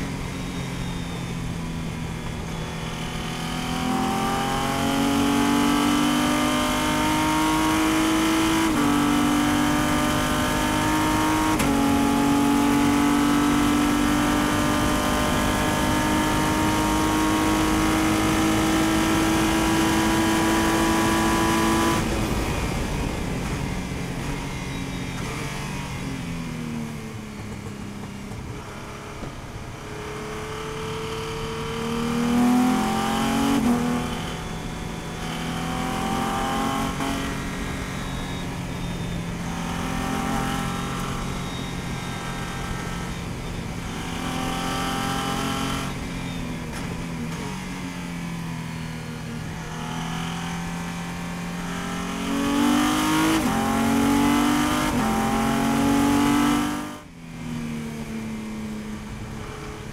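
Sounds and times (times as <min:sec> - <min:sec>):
race car engine accelerating: 0:02.9 - 0:22.7.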